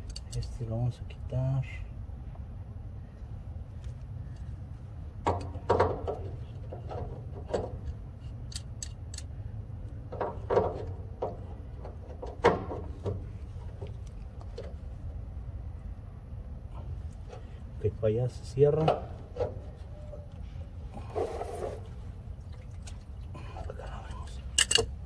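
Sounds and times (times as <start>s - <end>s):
steady low rumble: 0.0s - 25.0s
metal tools clinking and knocking: 24.5s - 25.0s.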